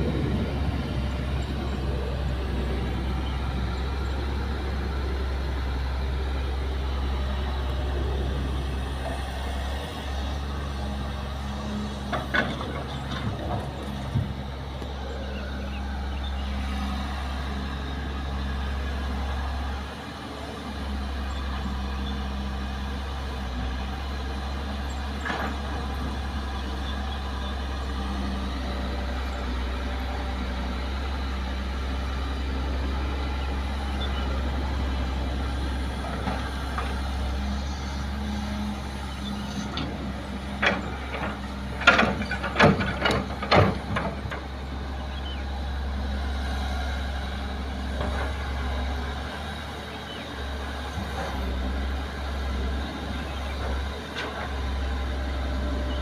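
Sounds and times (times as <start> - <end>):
excavator diesel engine running: 0.0 - 56.0
soil and rock clattering: 11.9 - 15.0, 39.7 - 44.7.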